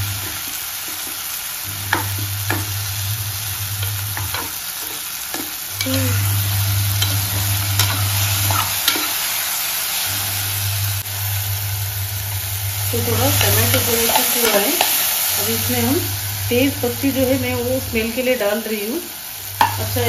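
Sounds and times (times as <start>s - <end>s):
onions sizzling in oil: 0.0s - 20.0s
steel spoon scraping pot: 3.7s - 9.2s.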